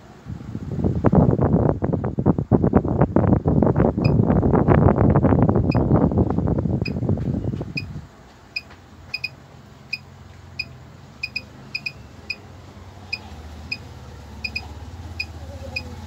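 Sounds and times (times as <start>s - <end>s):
faint low hum: 3.9s - 16.0s
short high beeps: 8.6s - 10.0s, 10.6s - 12.4s, 14.4s - 15.9s.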